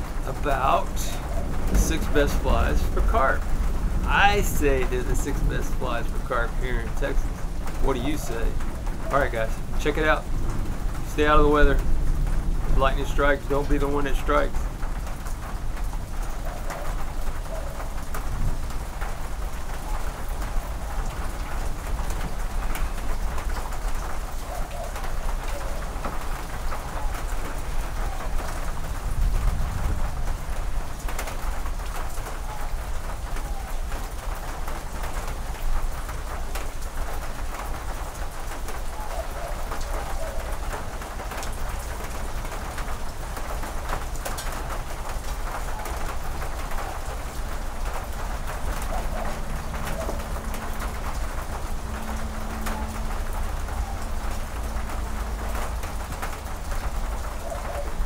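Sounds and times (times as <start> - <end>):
rain on metal roof: 0.0 - 58.0
bird calling: 0.6 - 3.0, 7.2 - 9.7, 16.2 - 28.7, 32.3 - 34.2, 38.6 - 41.0, 45.6 - 58.0.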